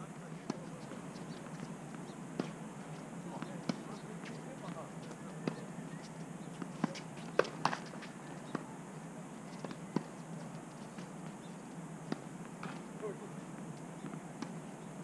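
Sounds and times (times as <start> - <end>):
tennis balls bouncing on hard court: 6.5 - 8.7, 12.1 - 12.8.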